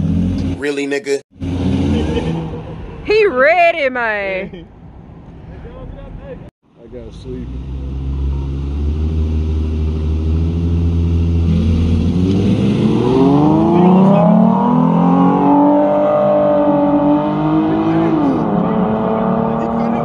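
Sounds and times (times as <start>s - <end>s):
car engines accelerating hard: 1.4s - 3.1s, 6.8s - 20.0s.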